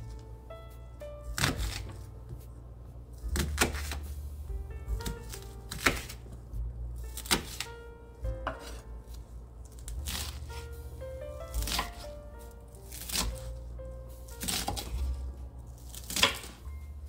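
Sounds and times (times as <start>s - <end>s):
background music: 0.0s - 17.0s
knife slicing onion: 1.3s - 2.4s, 3.3s - 4.2s, 4.9s - 6.3s, 7.1s - 7.7s, 8.5s - 8.9s, 9.7s - 10.7s, 11.5s - 12.1s, 12.8s - 13.6s, 14.4s - 15.1s, 15.8s - 16.6s.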